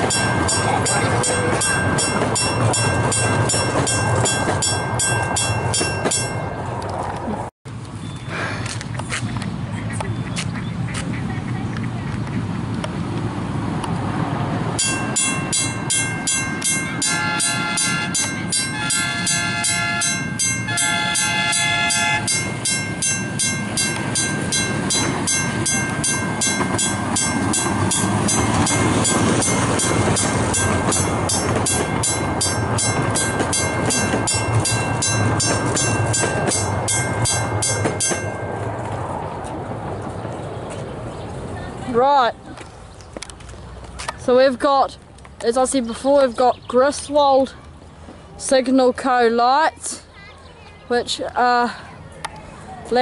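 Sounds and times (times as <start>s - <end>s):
level-crossing bell ringing: 0.0s - 6.7s, 14.8s - 39.2s
low rumble of passing train: 0.0s - 8.8s, 9.6s - 45.4s
train horn: 17.0s - 22.4s.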